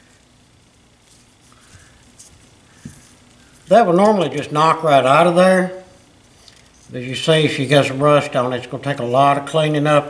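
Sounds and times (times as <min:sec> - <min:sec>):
gloved hands rustling on metal: 0:00.9 - 0:04.6.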